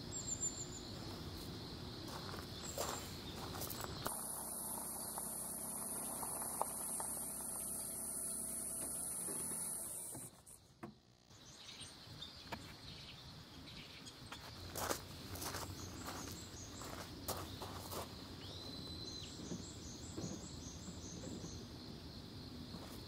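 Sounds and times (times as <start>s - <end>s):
steady hum: 0.0s - 11.6s
faint outdoor ambience: 0.0s - 23.0s
thin high whine: 3.8s - 11.4s.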